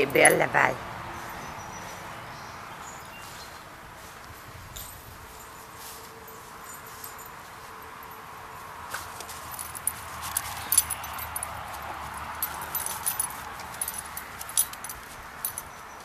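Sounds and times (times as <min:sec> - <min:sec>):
dog collar tags jingling: 0:06.2 - 0:08.2, 0:09.3 - 0:16.0.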